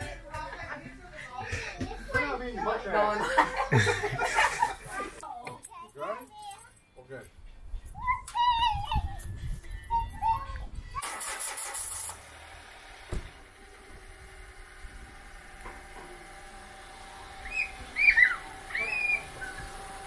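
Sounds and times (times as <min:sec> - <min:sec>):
dog whining: 0:17.4 - 0:19.8.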